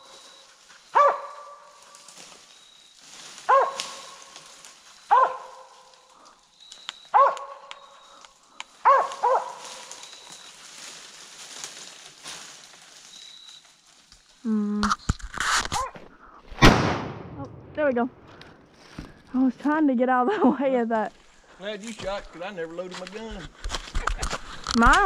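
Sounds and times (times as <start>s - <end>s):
dog barking: 0.9s - 1.8s, 3.5s - 4.3s, 5.1s - 5.9s, 7.1s - 7.7s, 8.8s - 10.0s.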